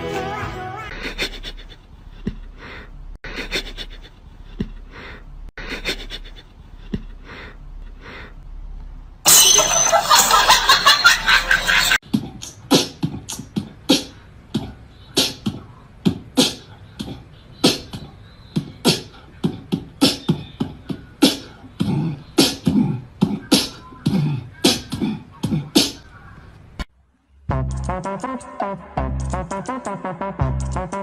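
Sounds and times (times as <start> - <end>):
beatboxing clicks and pops: 12.1 - 23.8.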